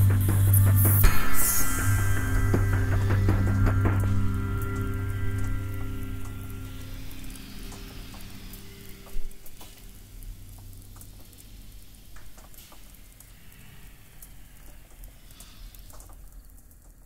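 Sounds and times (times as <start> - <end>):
music track: 0.0 - 11.8
soft hiss: 0.0 - 17.0
clicks and crackles: 2.5 - 17.0.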